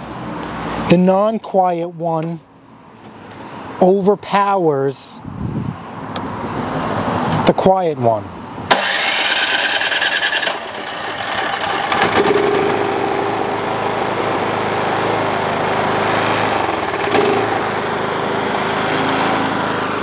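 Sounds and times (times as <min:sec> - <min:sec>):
electric starter rattling: 0:08.7 - 0:13.0, 0:16.2 - 0:18.0
second snowblower engine running: 0:08.7 - 0:20.0
snowblower engine running: 0:08.7 - 0:20.0.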